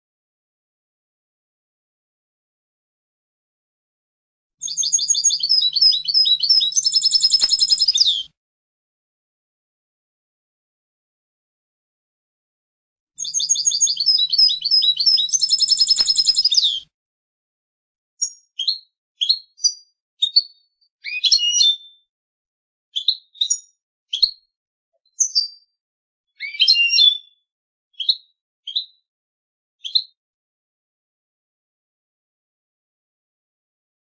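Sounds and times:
goldfinch singing: 0:04.6 - 0:08.3, 0:13.2 - 0:16.8.

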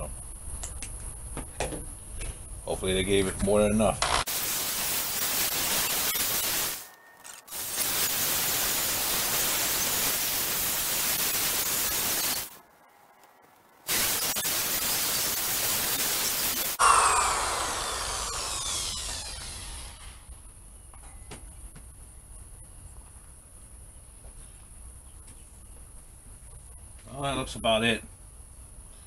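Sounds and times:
drill polishing pad hissing: 0:04.3 - 0:06.9, 0:07.5 - 0:12.6, 0:13.9 - 0:20.3.

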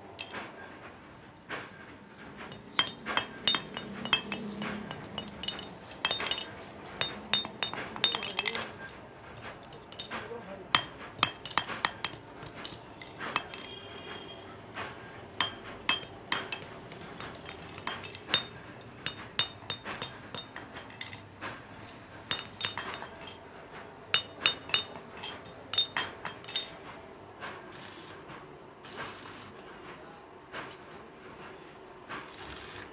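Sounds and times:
steel chain rings clinking: 0:00.0 - 0:14.5, 0:15.3 - 0:26.9.

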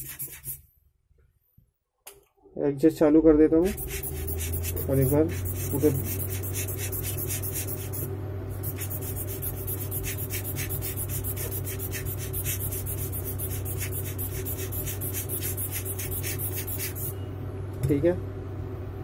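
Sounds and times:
brush scrubbing circuit board: 0:00.0 - 0:00.6, 0:03.6 - 0:17.1
steady low hum: 0:02.6 - 0:19.0.

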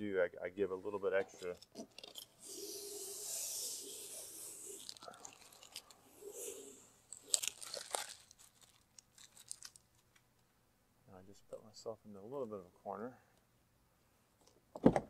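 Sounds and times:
vinyl film crackles: 0:04.8 - 0:06.0, 0:07.1 - 0:10.2.

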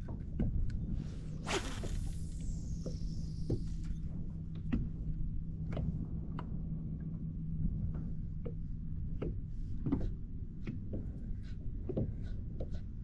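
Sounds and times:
steady low rumble: 0:00.2 - 0:09.8
line whirring off reel: 0:01.3 - 0:04.1
fishing rod swish: 0:01.4 - 0:03.8.

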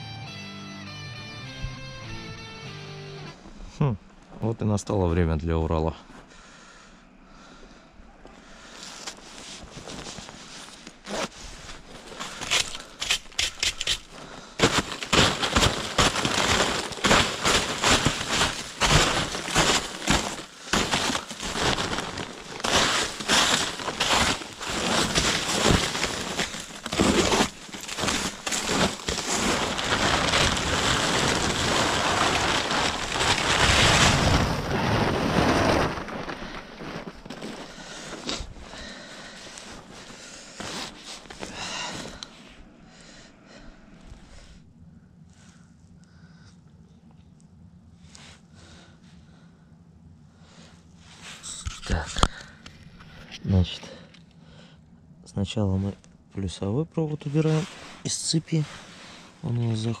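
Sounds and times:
stiff tarpaulin crackling and rustling: 0:08.6 - 0:42.5, 0:55.7 - 1:00.0
snow falling off tarpaulin: 0:13.8 - 0:42.2, 0:57.4 - 1:00.0.

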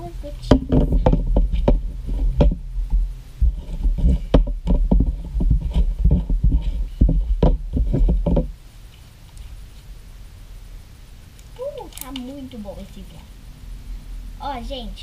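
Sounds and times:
knocks and thumps in plastic bowl: 0:00.4 - 0:02.6, 0:03.4 - 0:08.5.

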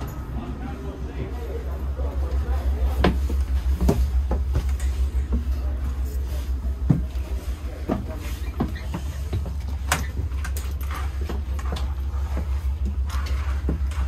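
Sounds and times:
train car low rumble: 0:00.0 - 0:14.0
knocks and rattles in carriage: 0:02.8 - 0:14.0.

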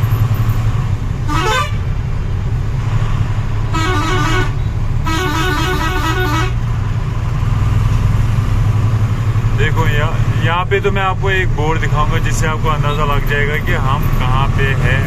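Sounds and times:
truck engine droning: 0:00.0 - 0:15.0
vehicle horn blasts: 0:01.3 - 0:01.8, 0:03.7 - 0:06.6.

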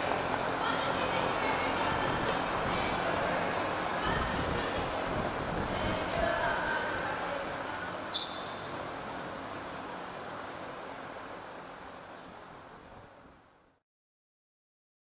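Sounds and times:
players' voices and chatter: 0:00.1 - 0:08.2
sneakers squeaking on floor: 0:07.4 - 0:09.4.

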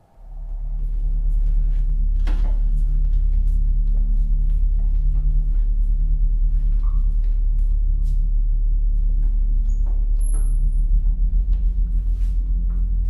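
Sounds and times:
deep rumbling suspense music drone: 0:00.0 - 0:13.0.

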